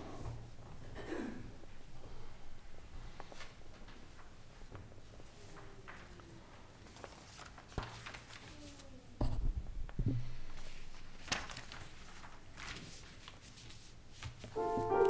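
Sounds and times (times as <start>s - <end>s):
paper rustling: 3.2s - 9.0s, 10.5s - 15.0s.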